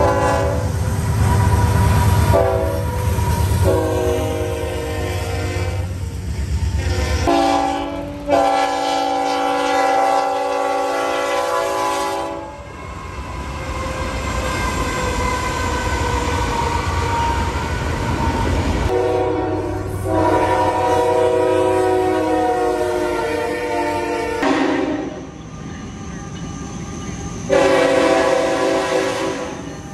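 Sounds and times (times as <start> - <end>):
locomotive air horn: 0.0 - 6.0, 6.7 - 14.3, 18.9 - 25.2, 27.5 - 29.6
passing train rumble: 0.0 - 29.9.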